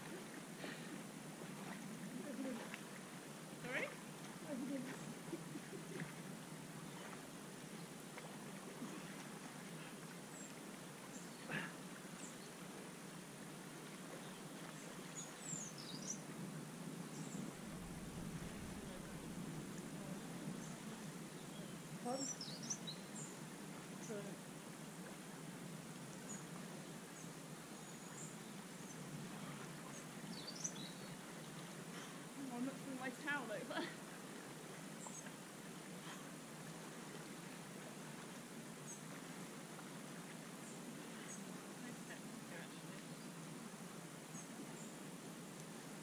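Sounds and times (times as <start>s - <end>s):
steady low hiss: 0.0s - 46.0s
faint high bird chirps: 21.4s - 23.3s.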